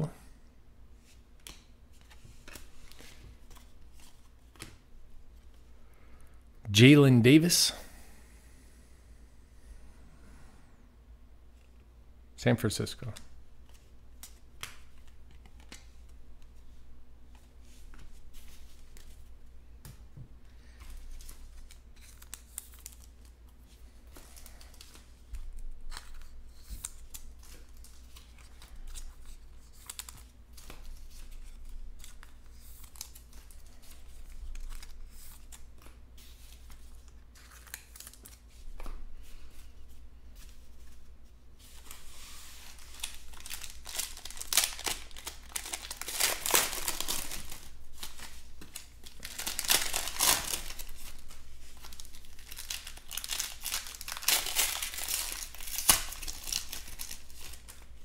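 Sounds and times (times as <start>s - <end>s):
cards sliding and rustling: 1.0s - 4.8s, 25.9s - 52.0s
foil pack crinkling: 41.8s - 58.0s.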